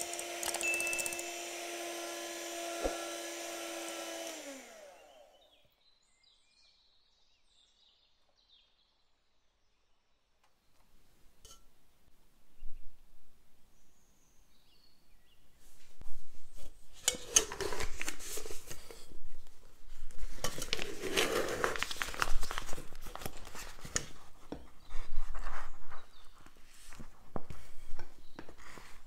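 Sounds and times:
piping bag rustling and crinkling: 17.6 - 29.0.

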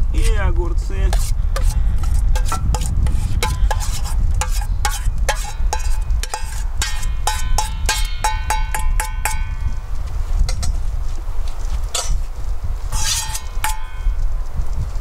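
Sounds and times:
steady low rumble: 0.0 - 15.0
metal spoon scraping and tapping bowl: 1.1 - 9.7, 10.5 - 10.8, 12.0 - 12.2, 12.9 - 14.2.

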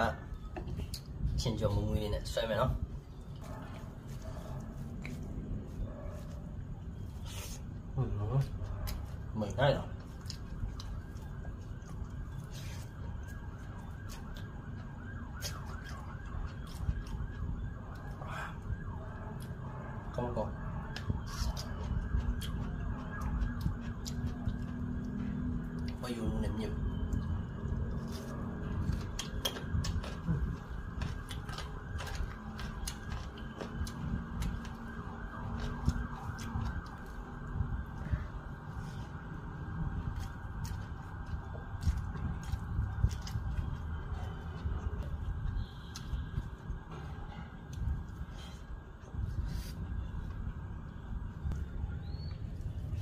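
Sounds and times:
siren yelping: 7.9 - 45.9.

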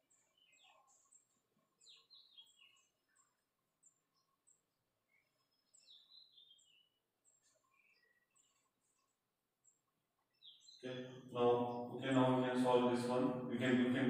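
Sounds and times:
faint bird chirping: 0.0 - 14.0.

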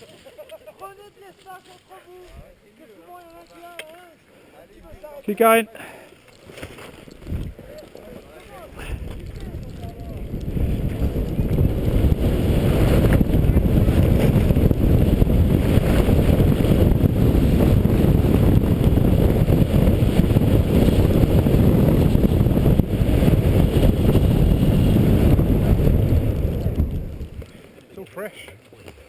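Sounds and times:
wind rushing over microphone: 7.1 - 7.7, 8.6 - 27.5.

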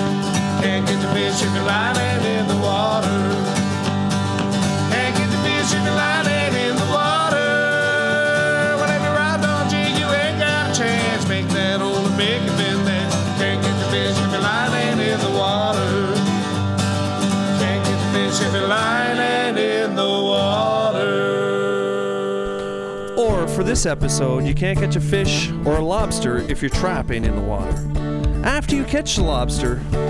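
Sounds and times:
strummed acoustic guitars: 0.0 - 30.0
men singing together: 0.6 - 3.8, 4.8 - 16.4, 17.4 - 23.2.

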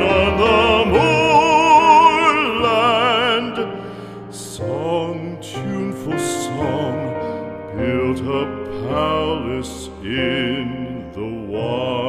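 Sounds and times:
singer with wide vibrato: 0.0 - 3.8
classical accompaniment: 0.0 - 12.0.

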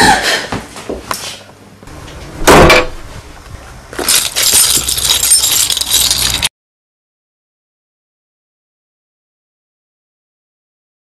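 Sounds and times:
high clinking and jangling: 4.0 - 6.5.

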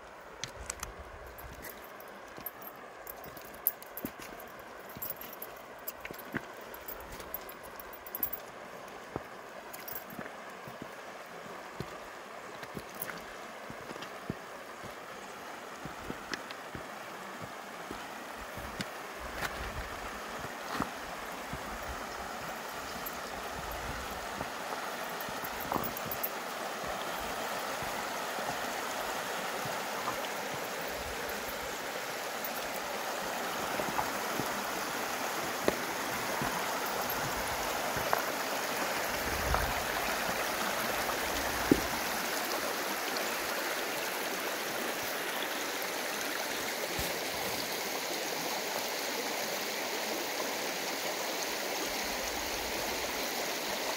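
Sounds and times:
river babbling over cobbles: 0.0 - 53.9.

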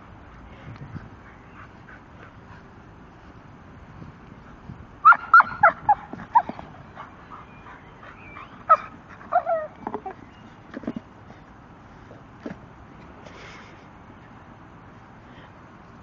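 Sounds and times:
dog whining and yipping: 5.0 - 6.7, 7.3 - 10.2.

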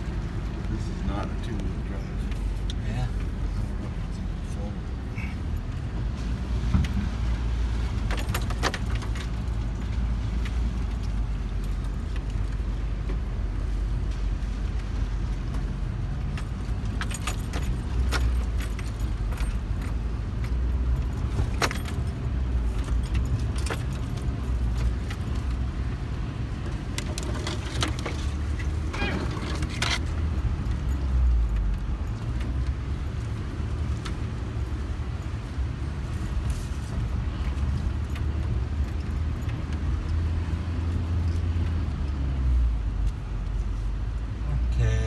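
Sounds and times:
vehicle engine and road rumble: 0.0 - 45.0
rattles and jingles: 8.0 - 10.0, 16.2 - 25.6, 27.0 - 32.7.

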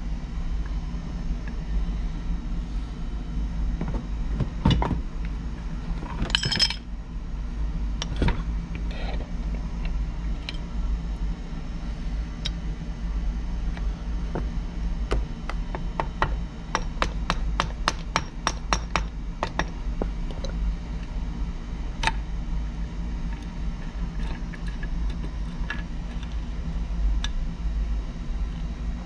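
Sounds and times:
steady low hum: 0.0 - 29.0
metal parts clinking: 6.3 - 6.8.

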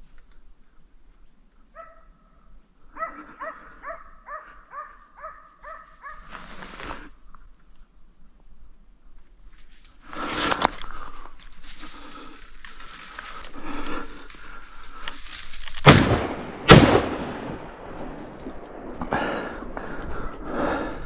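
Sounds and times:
irregular rustling: 9.2 - 15.9
gunshots with ringing tail: 15.8 - 19.0.

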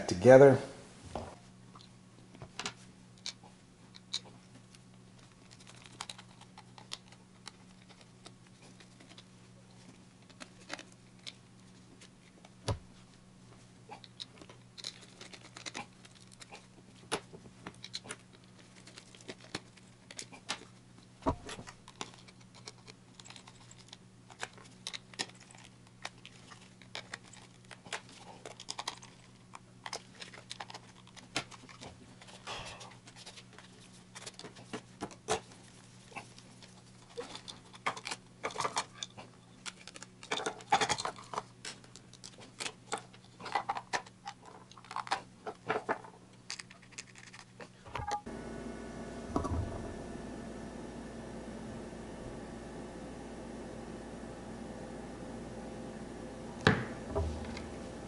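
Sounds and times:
plastic parts clicking and rattling: 2.6 - 12.5, 14.0 - 20.8, 21.4 - 32.4, 33.1 - 35.5, 36.5 - 48.2.

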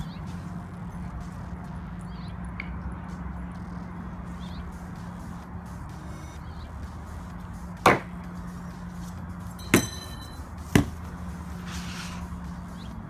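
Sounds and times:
machete chopping cardboard boxes: 7.9 - 8.1, 10.7 - 11.0.

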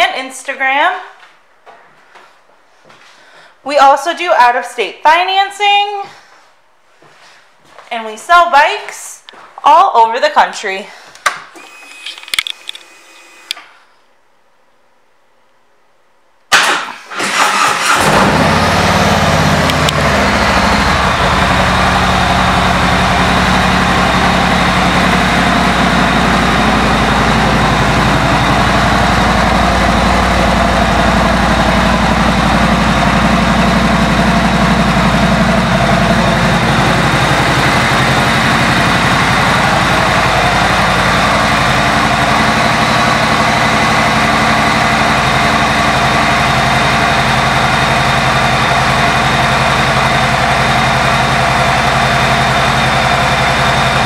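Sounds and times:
motorcycle engine starting: 16.5 - 54.0
motorcycle engine idling: 19.2 - 54.0.

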